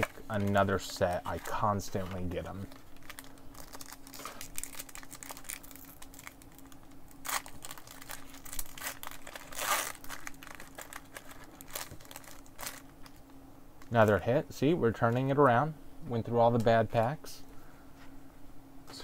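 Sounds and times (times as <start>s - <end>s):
packaging rustles: 0.0s - 14.1s
card pack packaging crinkling: 0.0s - 14.2s.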